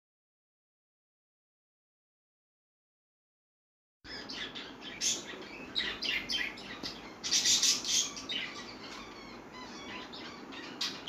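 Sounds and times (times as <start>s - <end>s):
small birds chirping: 4.1s - 11.0s.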